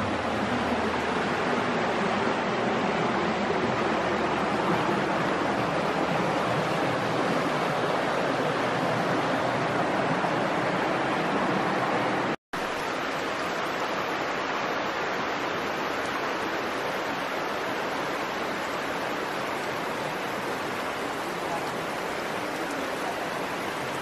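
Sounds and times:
waterfall roaring: 0.0 - 24.0.

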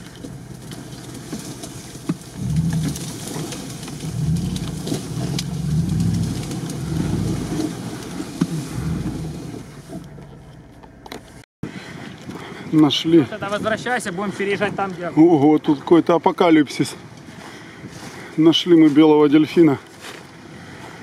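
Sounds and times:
car engine under throttle: 0.0 - 11.4.

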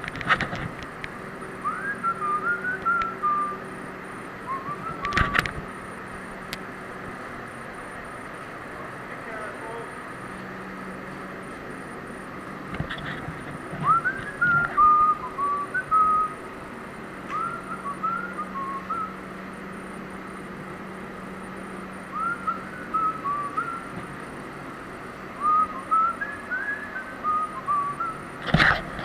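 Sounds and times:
steady low hum: 0.0 - 29.0
person whistling a tune: 1.6 - 3.6, 4.4 - 5.3, 13.8 - 16.4, 17.3 - 19.2, 22.1 - 23.9, 25.4 - 28.2.

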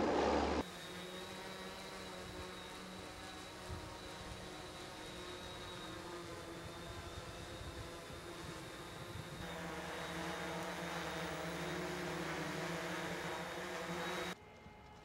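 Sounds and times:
engine hum: 0.0 - 1.0, 4.3 - 15.0.

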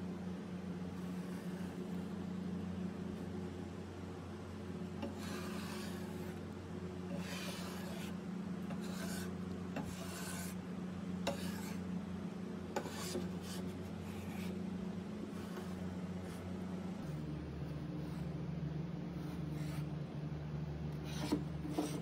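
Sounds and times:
steady low hum: 0.0 - 22.0
metal scraper scraping wood: 5.0 - 6.4, 7.1 - 10.6, 11.2 - 11.8, 12.7 - 14.6, 21.0 - 22.0.

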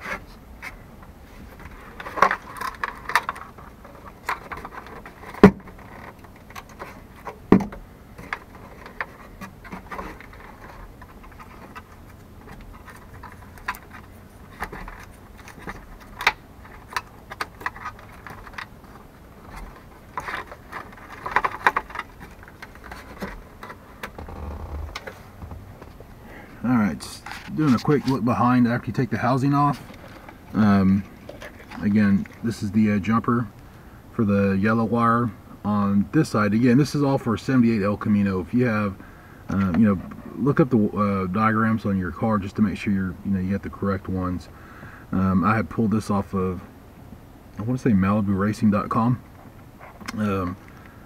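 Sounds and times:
plastic clicks and rattles: 1.6 - 25.2.

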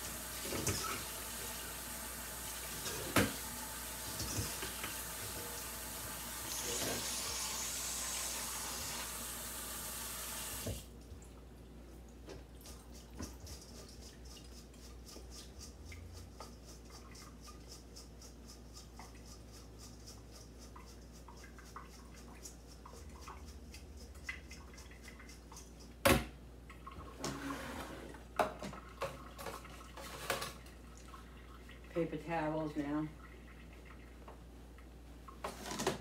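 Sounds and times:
water dripping: 20.8 - 26.0, 33.1 - 35.4.

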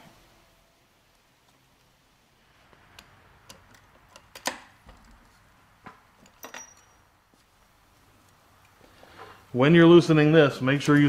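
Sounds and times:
metal tools clinking: 6.2 - 7.2
short metallic ring: 6.4 - 7.2.

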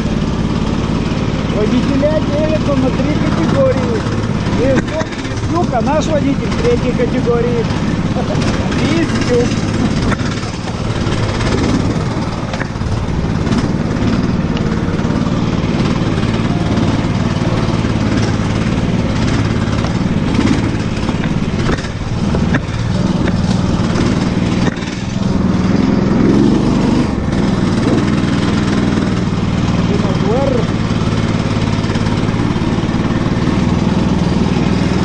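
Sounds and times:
off-road vehicle engine running: 0.0 - 35.0
knocks and rattles: 0.8 - 35.0.

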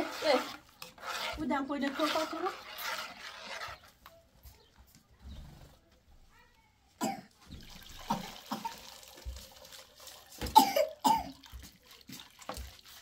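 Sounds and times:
person coughing: 7.0 - 7.3, 10.5 - 11.4
liquid trickling into strainer: 7.6 - 10.6, 11.3 - 13.0.

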